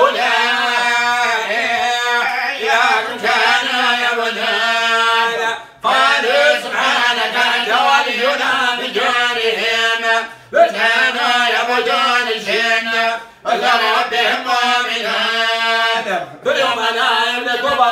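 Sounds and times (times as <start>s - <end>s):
man chanting religious recitation: 0.0s - 17.9s.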